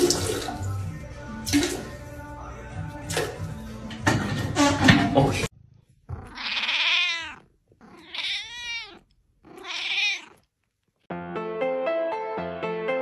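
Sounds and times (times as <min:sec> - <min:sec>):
music: 0:00.0 - 0:05.5, 0:11.1 - 0:13.0
cat meowing: 0:06.1 - 0:10.5.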